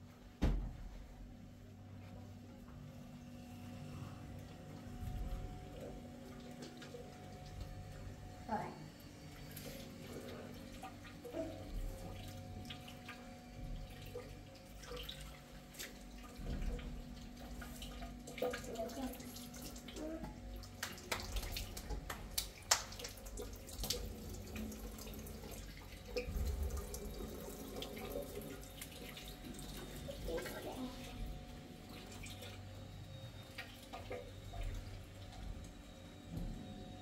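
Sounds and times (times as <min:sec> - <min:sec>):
water running and splashing: 0:09.4 - 0:32.7.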